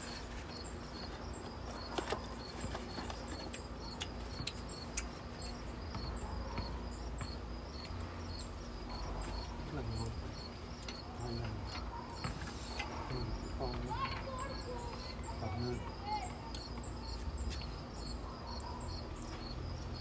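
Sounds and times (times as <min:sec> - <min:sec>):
crickets chirping: 0:00.0 - 0:20.0.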